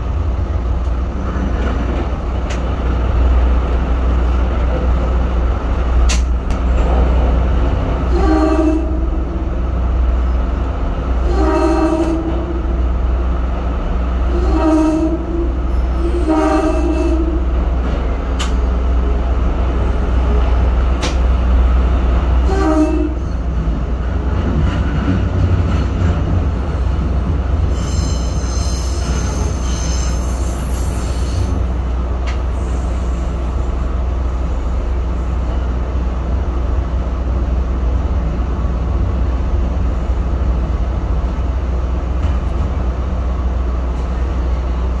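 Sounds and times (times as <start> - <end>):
train rumbling on rails: 0.0 - 45.0
sharp click: 6.1 - 6.6
train wheels squealing: 27.7 - 31.6.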